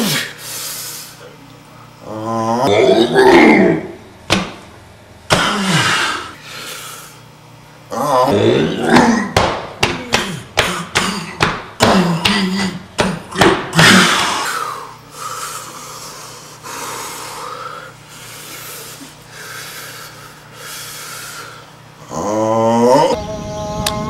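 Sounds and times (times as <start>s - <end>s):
man grunting: 2.0s - 4.0s, 7.9s - 14.8s, 22.0s - 23.2s
man panting heavily: 10.0s - 21.8s.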